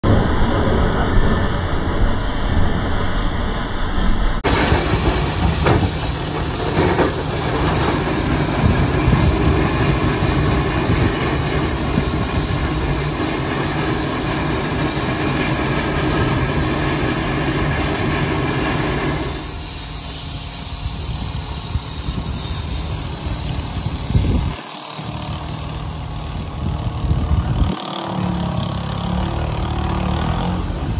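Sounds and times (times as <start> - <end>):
steam shovel engine running: 4.4 - 30.9
short machinery knocks: 4.5 - 8.1
loud hiss of escaping steam: 4.5 - 30.9.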